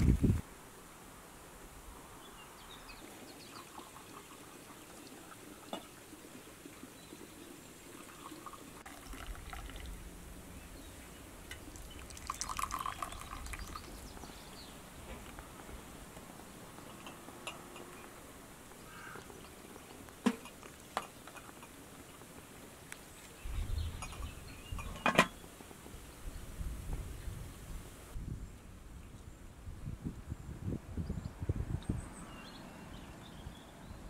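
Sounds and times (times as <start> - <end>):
liquid pouring into glasses: 3.1 - 6.9, 7.8 - 10.0, 11.5 - 14.1.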